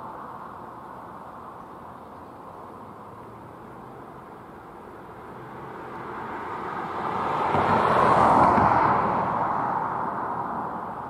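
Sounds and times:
vehicle passing by: 2.7 - 11.0.

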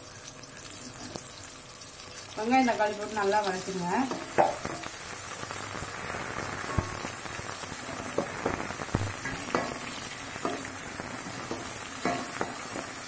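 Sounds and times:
food sizzling in oil: 0.0 - 13.0.

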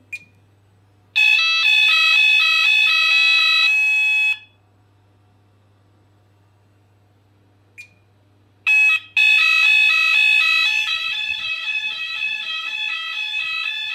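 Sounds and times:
fire alarm tone: 1.2 - 4.6, 8.7 - 13.9.

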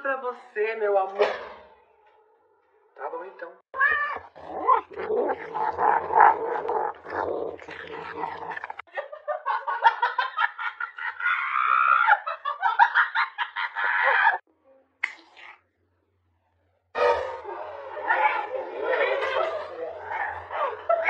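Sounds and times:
dog-like animal growling: 4.0 - 8.9, 17.0 - 21.0.

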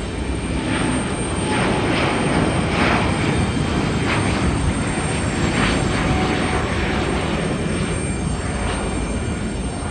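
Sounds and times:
jet engines at takeoff power: 0.0 - 9.9.

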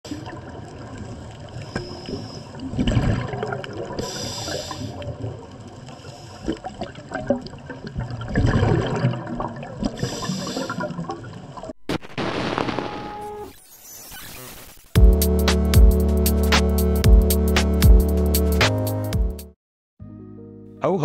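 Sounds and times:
exhaled bubbles gurgling underwater: 0.1 - 11.8
regulator inhalation hiss: 4.0 - 5.0.

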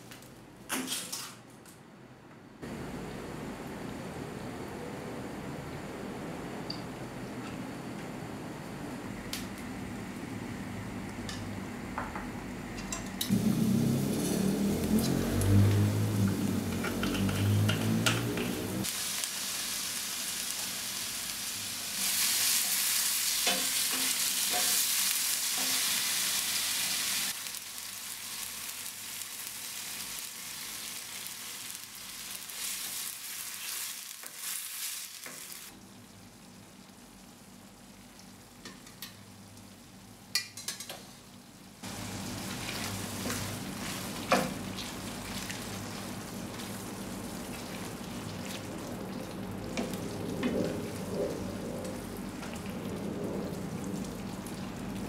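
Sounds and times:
food sizzling in oil: 13.3 - 52.8.

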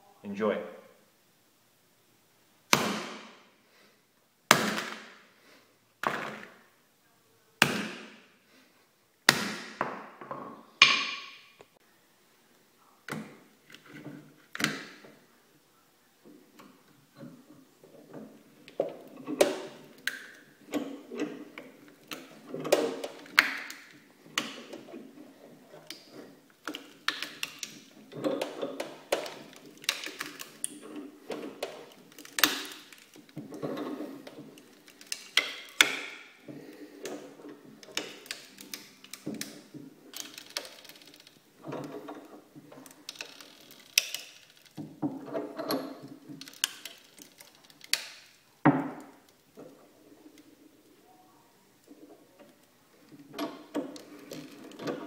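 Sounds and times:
vise screw being cranked: 36.7 - 48.1.

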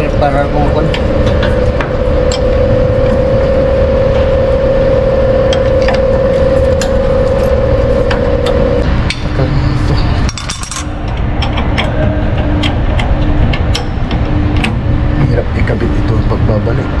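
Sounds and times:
loud steady hum: 0.0 - 17.0
metal tools clinking on bolts: 9.1 - 11.9.

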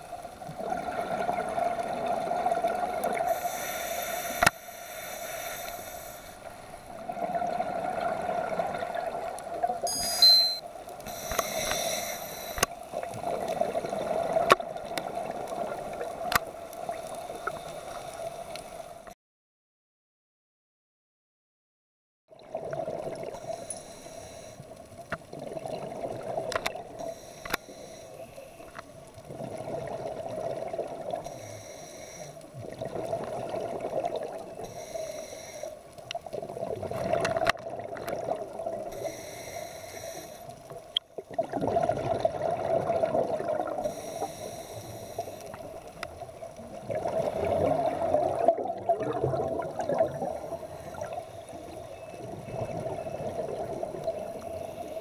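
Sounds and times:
exhaled bubbles rushing: 0.5 - 3.3, 7.0 - 9.8, 22.3 - 23.4, 25.3 - 27.0, 29.2 - 31.2, 32.6 - 34.6, 36.3 - 38.9, 41.2 - 43.9, 46.6 - 51.2, 52.2 - 54.2
regulator inhalation hiss: 3.2 - 6.8, 10.0 - 12.7, 23.4 - 24.7, 27.0 - 28.8, 31.3 - 32.5, 34.6 - 35.9, 38.9 - 40.6, 43.8 - 45.9.

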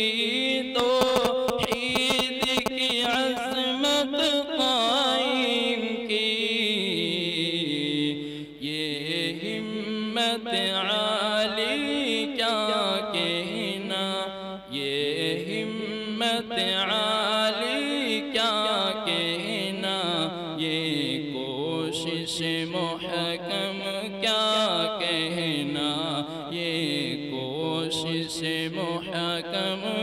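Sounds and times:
man singing into a microphone: 0.0 - 30.0
man breathing: 8.2 - 8.6.

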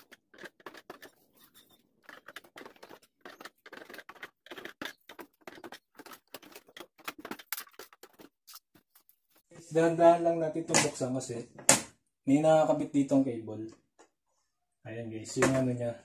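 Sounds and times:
hands working at plastic cover: 0.0 - 9.4.

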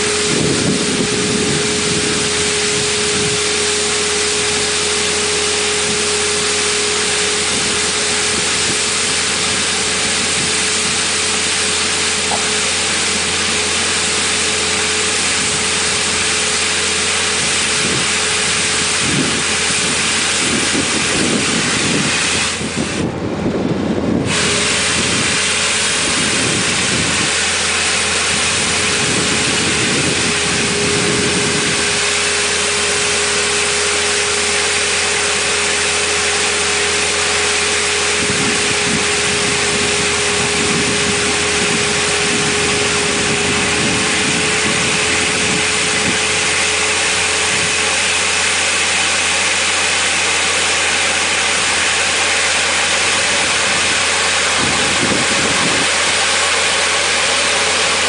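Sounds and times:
skid steer engine running: 0.0 - 58.0
steady hum: 0.0 - 58.0
rotary broom sweeping: 24.3 - 58.0.

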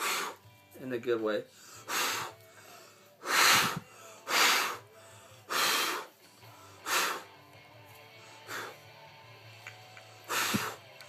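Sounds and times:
person blowing puffs of air: 0.0 - 0.4, 1.6 - 2.4, 3.2 - 4.9, 5.5 - 7.3, 8.4 - 8.8, 10.2 - 10.9.

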